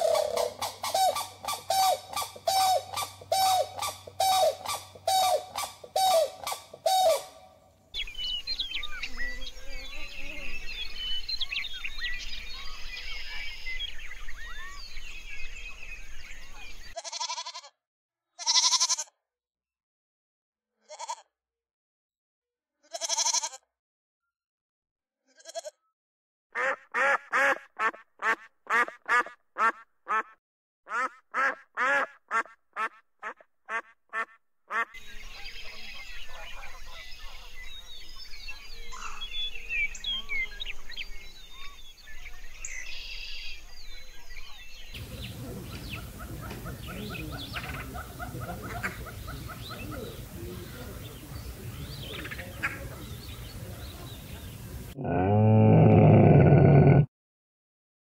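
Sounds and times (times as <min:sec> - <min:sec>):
animal calling: 0:00.0 - 0:07.5, 0:45.0 - 0:51.0, 0:54.9 - 0:57.1
shelduck honking: 0:00.0 - 0:07.5, 0:26.6 - 0:34.9
small birds chirping: 0:07.9 - 0:17.3, 0:35.0 - 0:55.0.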